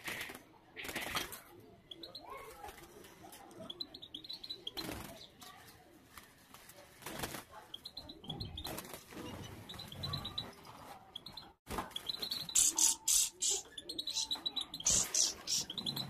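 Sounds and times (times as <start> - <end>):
quick high chirps: 12.2 - 16.0.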